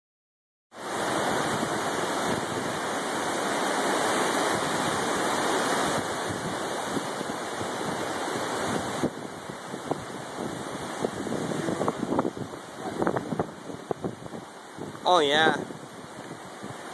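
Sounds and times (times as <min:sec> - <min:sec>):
flood water rushing: 0:00.8 - 0:16.9.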